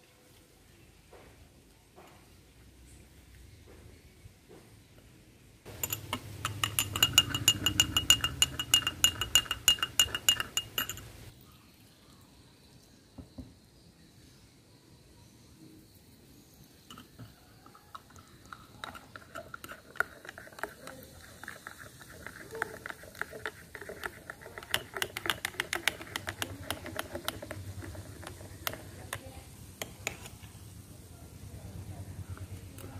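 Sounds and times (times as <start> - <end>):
fizzing and crackling foam: 19.8 - 25.2.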